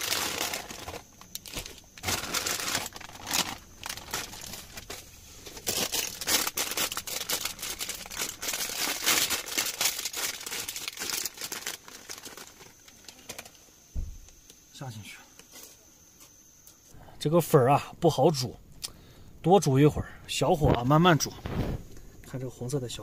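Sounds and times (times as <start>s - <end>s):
sachet tearing open: 0.0s - 13.2s
plastic sachets crinkling: 0.0s - 13.6s.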